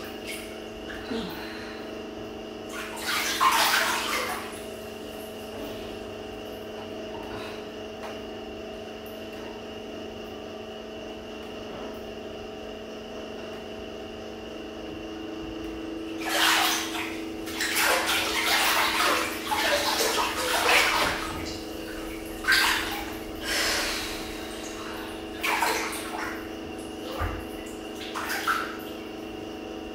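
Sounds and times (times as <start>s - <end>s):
steady hum: 0.0s - 29.9s
bathwater splashing: 2.7s - 5.9s, 16.0s - 29.2s.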